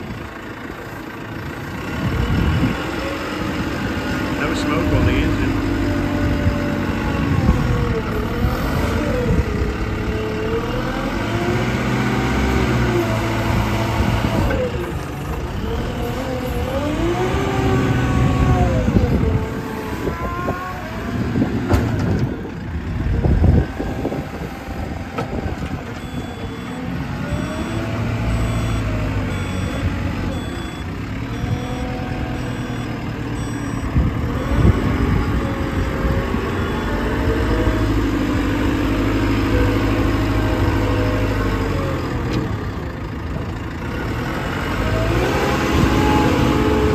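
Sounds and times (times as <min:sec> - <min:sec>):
diesel engine revving: 0:00.0 - 0:46.9
reversing alarm beeping: 0:26.0 - 0:40.0.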